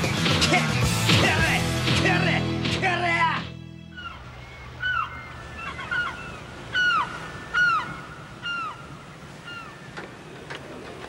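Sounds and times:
seagulls calling: 3.8s - 11.0s
surf hiss: 4.2s - 11.0s.

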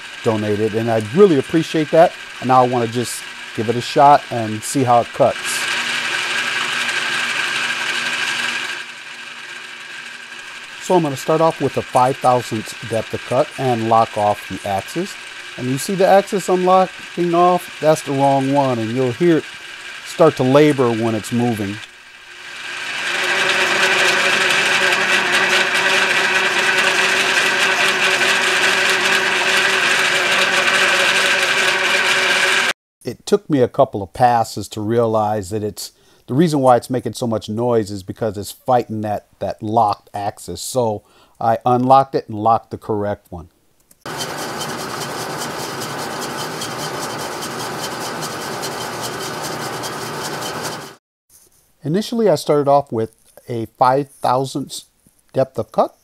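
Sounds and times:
milling machine whine: 0.0s - 32.7s, 44.1s - 51.0s
gritty metal cutting noise: 0.0s - 32.8s, 44.0s - 51.0s.

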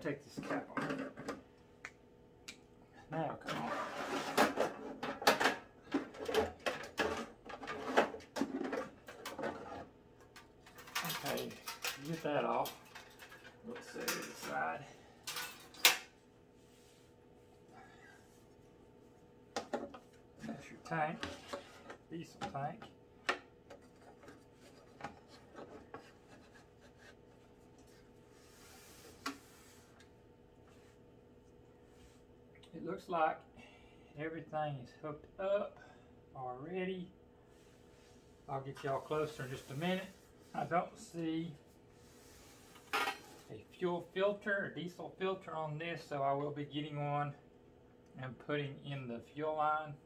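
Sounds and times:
cover clattering and scraping: 3.5s - 9.9s.

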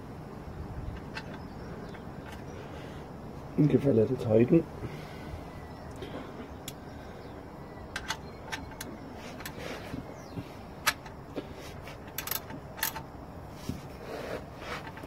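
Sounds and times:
ratchet wrench clicking: 12.1s - 13.0s.

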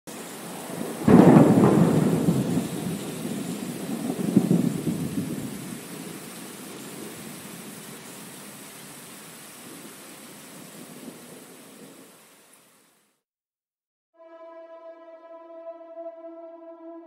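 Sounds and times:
thunder crack and rumble: 0.4s - 7.6s.

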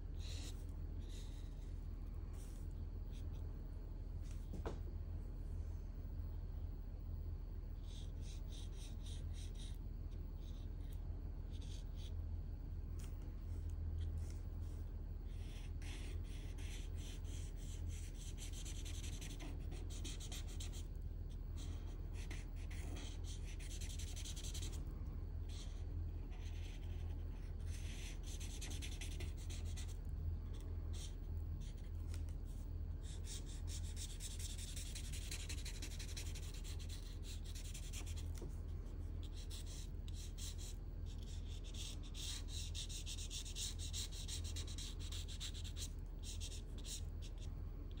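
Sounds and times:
steady low hum: 0.0s - 48.0s
marker nib rubbing on paper: 15.3s - 20.9s, 21.6s - 24.8s, 25.5s - 32.2s, 33.0s - 38.4s, 39.2s - 48.0s.

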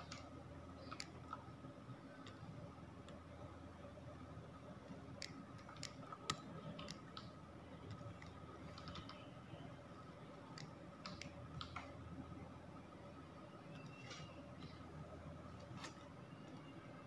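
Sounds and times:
mouse and keyboard clicks: 0.0s - 1.4s, 5.2s - 9.3s, 10.5s - 12.0s
steady low hum: 0.0s - 17.0s.

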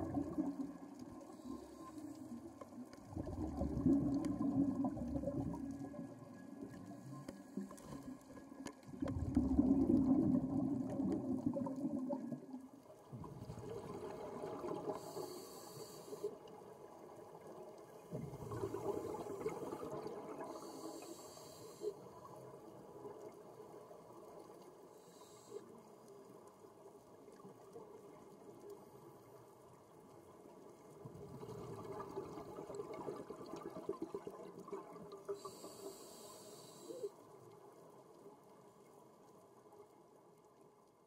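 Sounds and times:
regulator exhale bubbling: 3.0s - 6.0s, 8.9s - 12.5s, 18.1s - 22.0s
regulator inhalation hisses: 15.0s - 16.3s, 20.5s - 22.0s, 35.4s - 37.1s.

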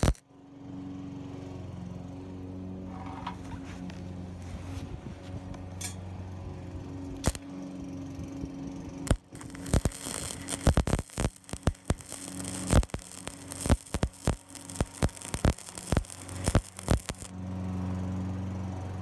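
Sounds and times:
welding arc crackling and popping: 0.0s - 0.2s, 7.2s - 7.5s, 9.0s - 17.4s
steady low hum: 0.0s - 19.0s.

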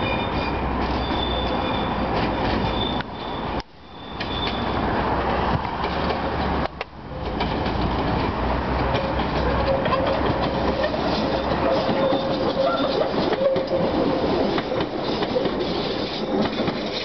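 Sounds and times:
train wheels clattering over rail joints: 5.5s - 17.0s.

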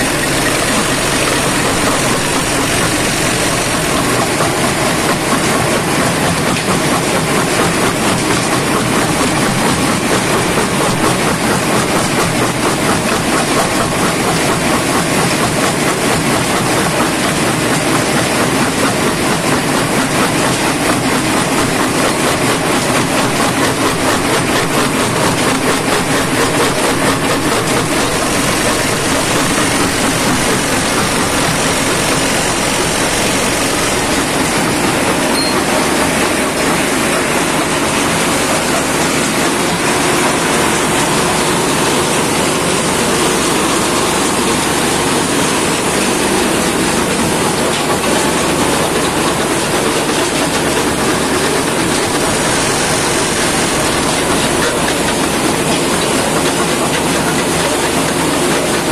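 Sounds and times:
jaw crusher running: 0.0s - 58.9s.

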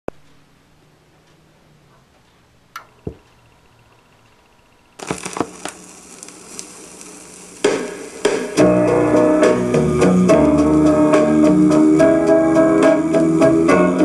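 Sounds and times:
vinyl surface hiss and crackle: 0.1s - 14.0s
turntable clicks: 2.2s - 8.6s
record music note: 5.0s - 14.0s.

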